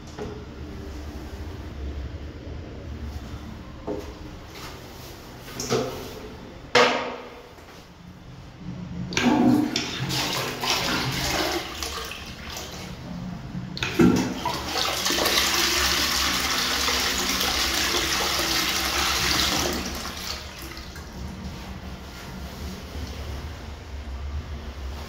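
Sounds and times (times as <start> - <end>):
toilet flushing: 9.0 - 23.2.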